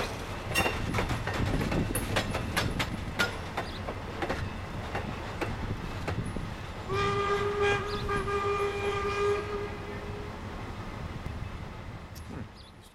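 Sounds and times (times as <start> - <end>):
train wheels clicking over rail joints: 0.0 - 9.1
steam locomotive whistle: 6.9 - 10.3.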